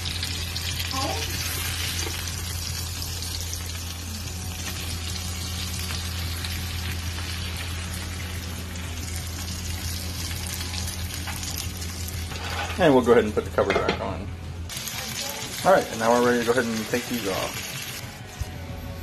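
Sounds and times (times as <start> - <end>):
fish fillets sizzling in a pan: 0.0 - 12.5, 14.7 - 18.0
low hum: 0.0 - 15.5.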